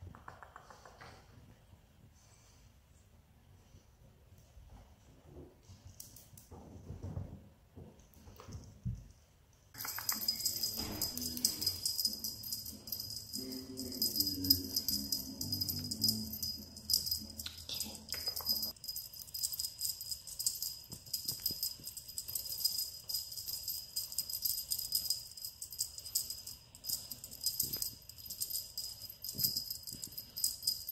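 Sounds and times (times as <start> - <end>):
small bells jingling: 9.8 - 30.9
low musical tones: 10.4 - 17.9.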